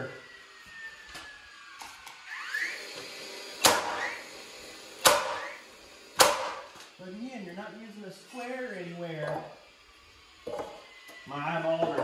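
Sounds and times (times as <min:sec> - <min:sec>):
nailer rising whine: 0:00.0 - 0:12.0
nail firing crack: 0:03.5 - 0:04.3, 0:05.0 - 0:06.9.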